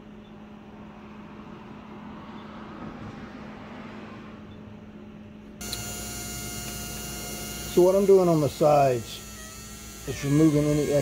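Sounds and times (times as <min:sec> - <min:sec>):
small electric motor humming: 0:05.6 - 0:11.0
whining motor tones: 0:05.6 - 0:11.0.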